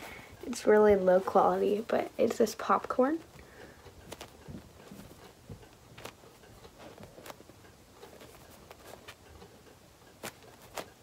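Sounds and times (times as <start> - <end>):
soft foam rustling: 0.0 - 11.0.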